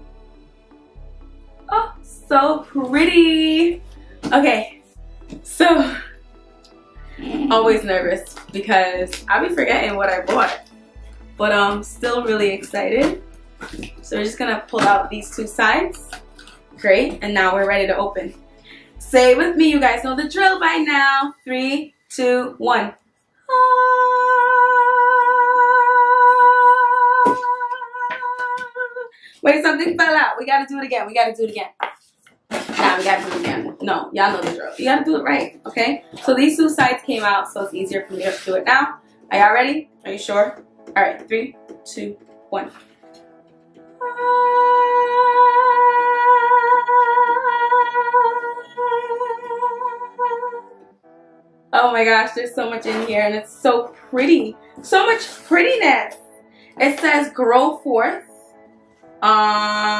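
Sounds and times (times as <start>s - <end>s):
woman singing high note: 23.5s - 29.8s, 44.0s - 50.7s.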